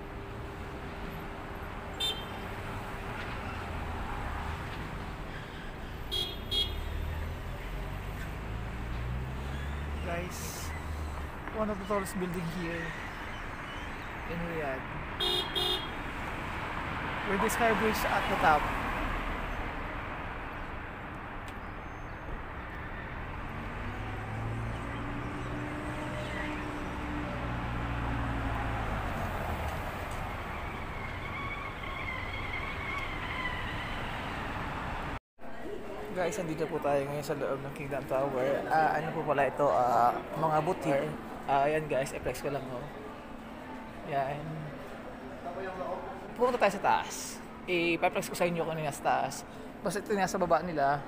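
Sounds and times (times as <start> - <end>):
low traffic rumble: 0.0 - 51.0
car horn beeps: 2.0 - 2.4, 6.1 - 7.0, 15.2 - 16.0.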